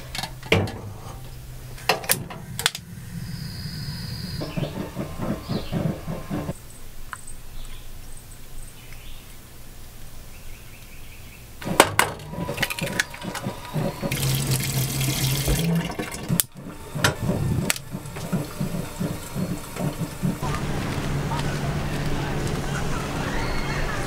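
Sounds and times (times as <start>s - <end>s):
egg cracking with clatter: 11.6s - 20.4s.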